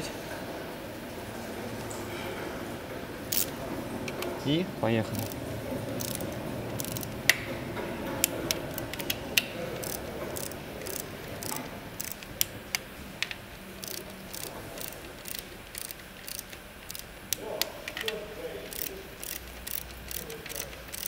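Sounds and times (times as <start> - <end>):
torque wrench ratcheting clicks: 3.3 - 3.5, 5.1 - 5.4, 6.0 - 7.2, 8.5 - 9.2, 9.8 - 21.0.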